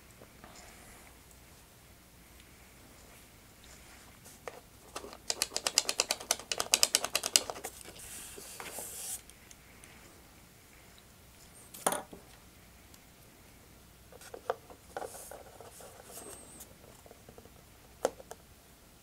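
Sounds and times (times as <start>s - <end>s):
rapid mechanical clicking: 5.0s - 7.6s.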